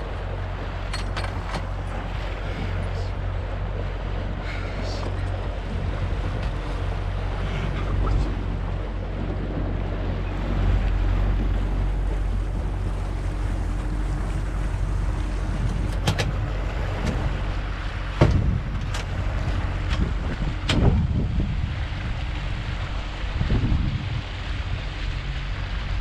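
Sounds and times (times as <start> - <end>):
outboard engine drone: 0.0 - 26.0
water rushing: 0.0 - 26.0
wind: 0.0 - 26.0
sharp knocks: 18.2 - 18.5.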